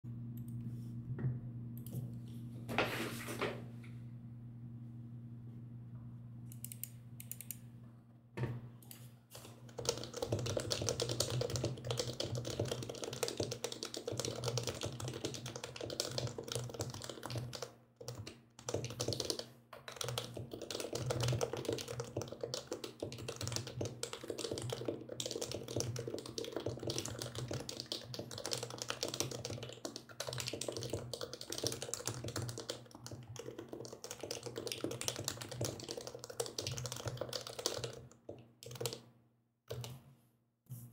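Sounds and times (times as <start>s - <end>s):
steady low hum: 0.1s - 10.1s
fast typing on mechanical keyboard: 9.4s - 39.1s, 39.7s - 39.9s.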